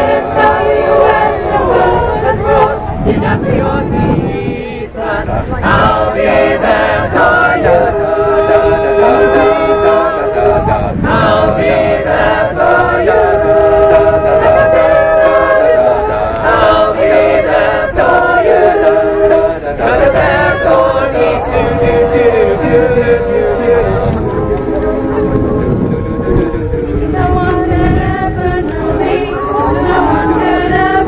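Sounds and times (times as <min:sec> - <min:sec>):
choir singing harmonies: 0:00.0 - 0:31.0
wind rumbling on microphone: 0:00.0 - 0:31.0.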